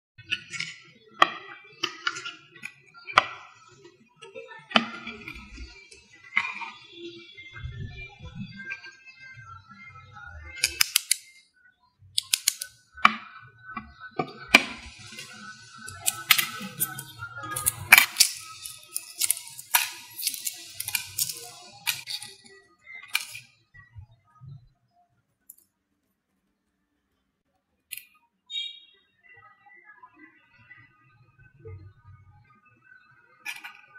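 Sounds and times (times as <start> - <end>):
egg shell crackling: 12.2 - 12.7, 14.6 - 23.4.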